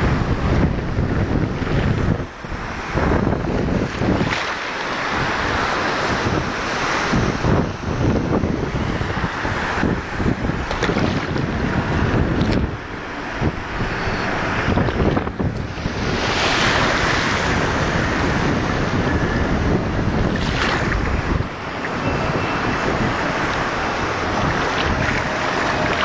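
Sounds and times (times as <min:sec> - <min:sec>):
small waves washing in surf: 0:00.0 - 0:26.0
wind buffeting microphone: 0:00.0 - 0:26.0.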